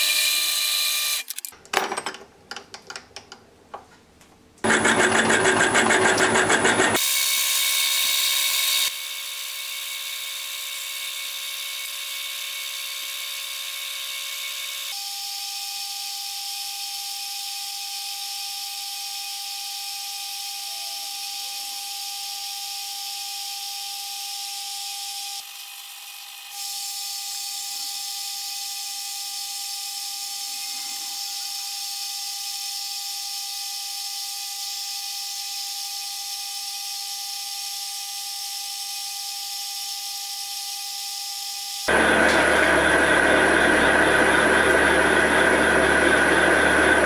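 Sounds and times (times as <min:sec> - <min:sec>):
metal lathe motor whine: 0:04.7 - 0:15.0, 0:41.6 - 0:47.0
lathe hiss: 0:41.9 - 0:47.0.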